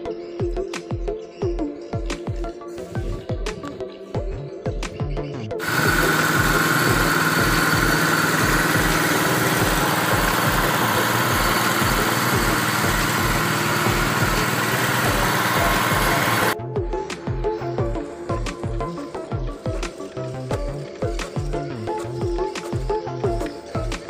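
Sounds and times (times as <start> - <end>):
electric air compressor running: 5.6 - 16.6, 19.5 - 24.0.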